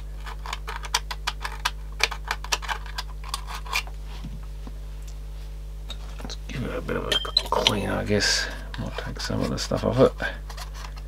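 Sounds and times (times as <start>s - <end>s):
faint low hum: 0.0s - 11.0s
small tool clicking and scratching: 0.2s - 3.9s.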